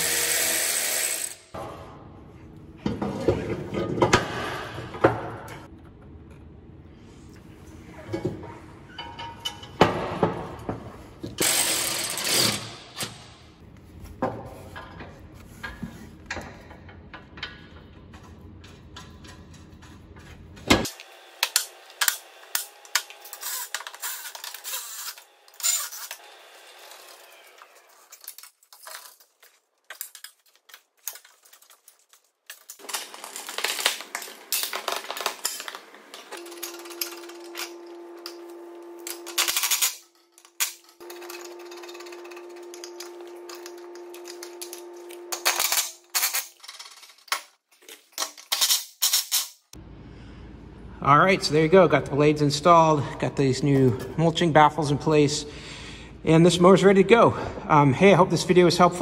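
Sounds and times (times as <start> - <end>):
metal parts clinking: 21.6 - 26.2, 27.8 - 38.4, 39.0 - 49.7.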